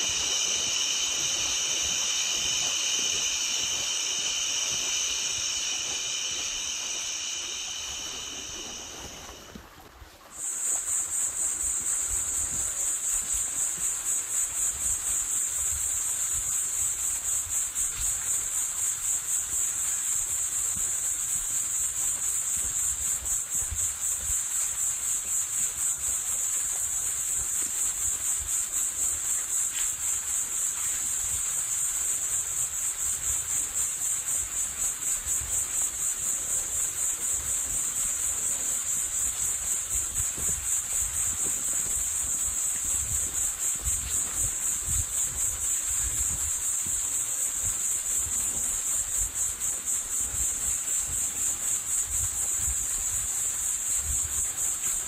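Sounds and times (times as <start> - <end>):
high-pitched pulsing chirr: 0.0 - 16.0.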